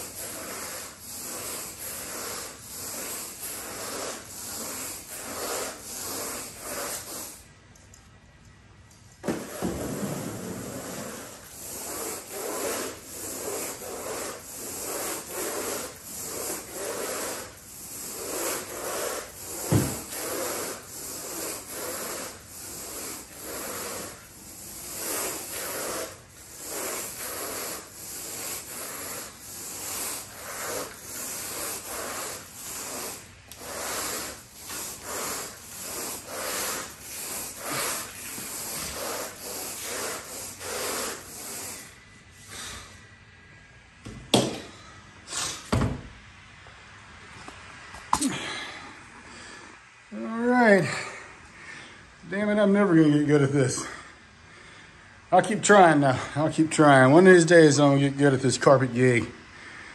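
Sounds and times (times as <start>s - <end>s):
rake rubbing through carpet: 0.0s - 7.4s, 9.2s - 42.8s.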